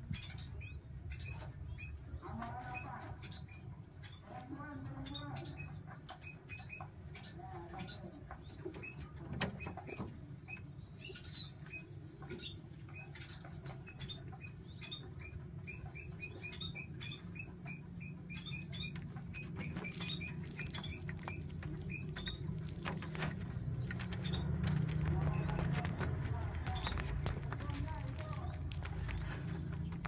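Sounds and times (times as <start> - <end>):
baby birds cheeping: 0.0 - 30.0
clicks and rustles in nest: 18.3 - 30.0.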